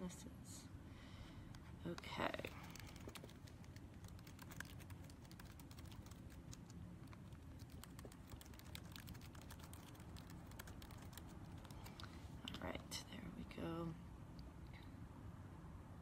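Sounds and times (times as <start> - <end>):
low room hum: 0.0 - 16.0
fingertips tapping keys: 1.5 - 12.1.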